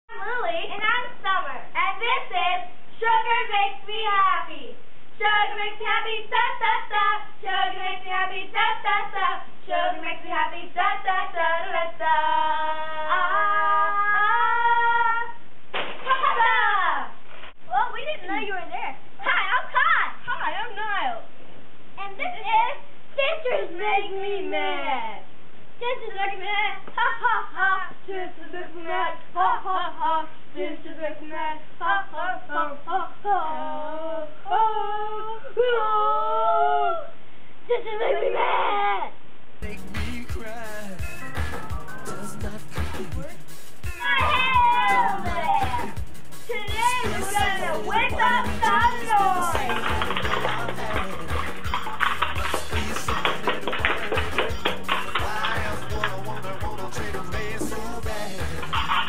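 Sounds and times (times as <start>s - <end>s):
girl singing unaccompanied: 0.1s - 15.4s, 25.8s - 36.9s, 43.9s - 54.2s.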